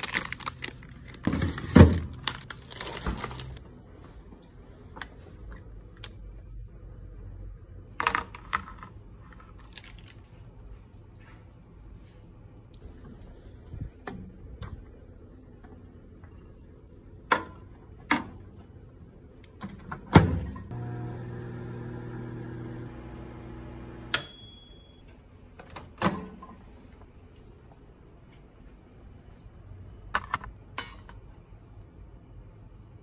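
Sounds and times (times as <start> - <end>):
microwave oven humming: 20.5 - 25.2
timer bell ding: 24.1 - 25.0.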